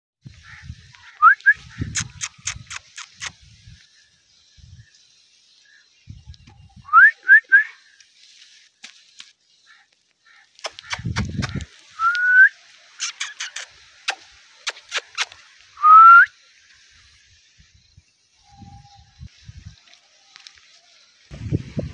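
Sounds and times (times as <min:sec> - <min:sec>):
sharp clicks: 0:10.5 - 0:12.2.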